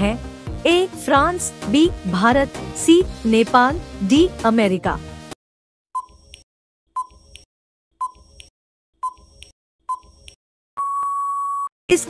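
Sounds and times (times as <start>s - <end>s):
short electronic beeps: 6.0s - 6.2s, 7.0s - 7.2s, 8.0s - 8.2s, 9.9s - 10.1s.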